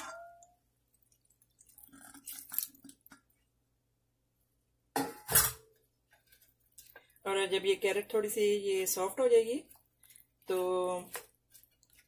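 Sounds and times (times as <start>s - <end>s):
liquid dripping: 0.4s - 3.4s.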